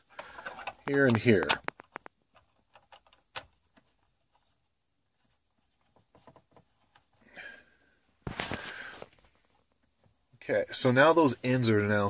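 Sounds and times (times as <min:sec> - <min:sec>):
faint plastic clicks and scrapes: 0:00.0 - 0:07.2.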